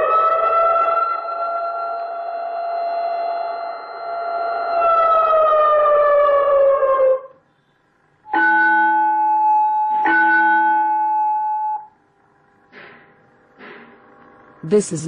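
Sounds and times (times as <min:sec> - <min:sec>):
siren tone winding down: 0:00.0 - 0:07.4, 0:08.3 - 0:12.0.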